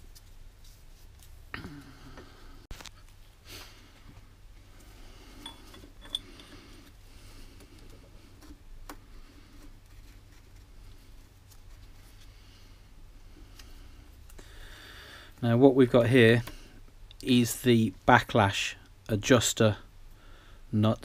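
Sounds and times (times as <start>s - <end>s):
steel parts clicking and clinking: 5.4s - 6.6s.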